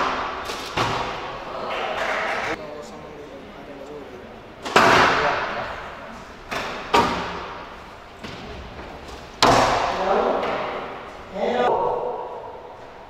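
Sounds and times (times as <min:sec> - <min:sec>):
squash ball hits echoing: 0:00.0 - 0:02.6, 0:04.6 - 0:05.6, 0:09.4 - 0:11.1.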